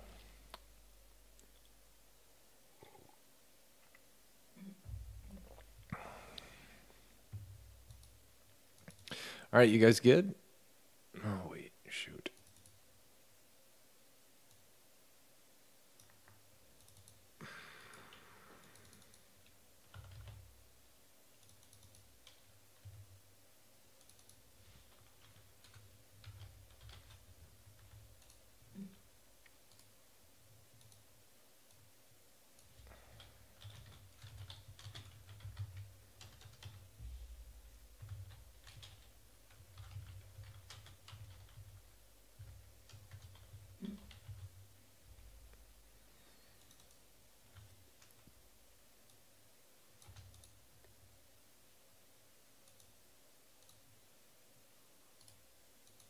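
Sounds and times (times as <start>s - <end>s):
soft low thumps: 4.8s - 5.9s
keyboard typing and clicking: 7.3s - 9.2s, 12.3s - 12.8s, 15.9s - 17.2s, 17.9s - 20.5s, 21.4s - 23.2s, 23.9s - 28.7s, 29.4s - 31.1s, 32.6s - 37.0s, 37.8s - 44.7s, 46.6s - 48.3s, 49.9s - 51.1s, 52.6s - 53.0s, 53.6s - 53.9s, 55.2s - 56.0s.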